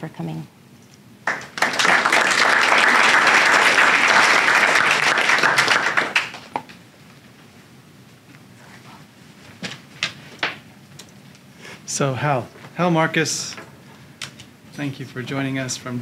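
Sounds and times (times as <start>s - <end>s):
audience applauding: 1.2s - 6.7s.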